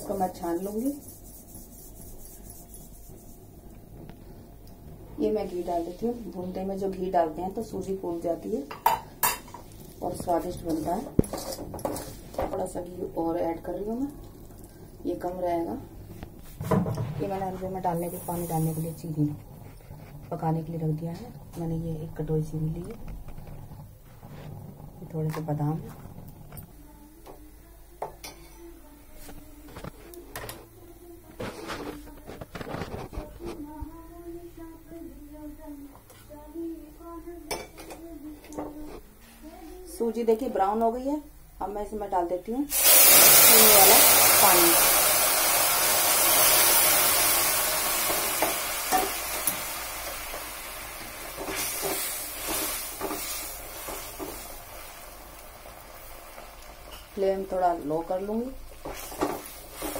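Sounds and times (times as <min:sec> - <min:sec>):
spatula stirring against pan: 0:00.0 - 0:03.6, 0:48.0 - 0:55.4, 0:58.0 - 0:59.9
syrup sizzling in hot pan: 0:17.9 - 0:19.2, 0:42.7 - 0:57.8, 0:58.6 - 0:59.9.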